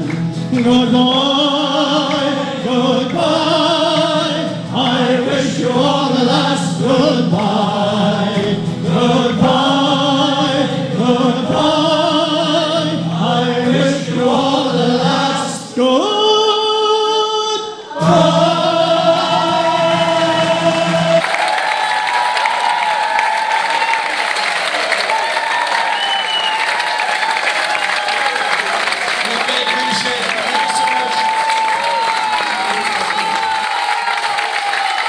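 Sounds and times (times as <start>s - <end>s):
male voice choir singing: 0.0s - 21.4s.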